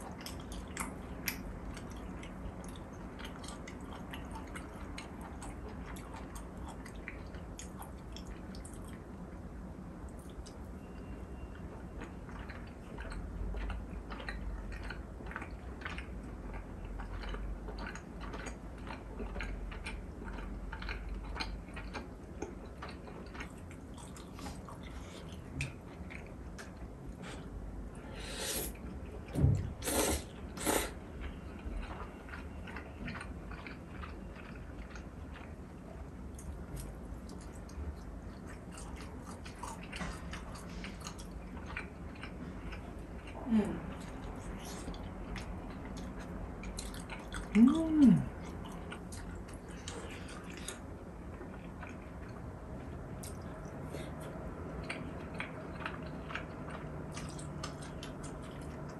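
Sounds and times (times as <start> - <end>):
person chewing: 0.0 - 9.4, 10.1 - 58.9
slurping noodles: 28.2 - 28.8, 29.8 - 31.0.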